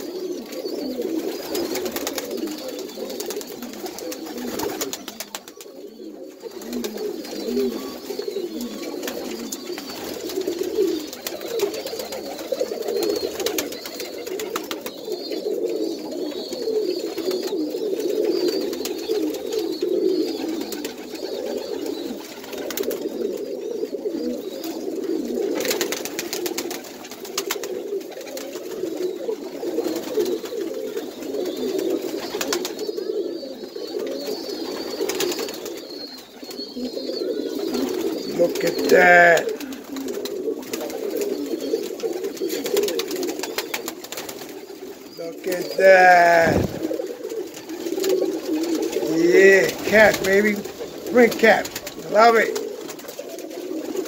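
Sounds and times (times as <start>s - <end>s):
pigeons cooing: 0.0s - 54.0s.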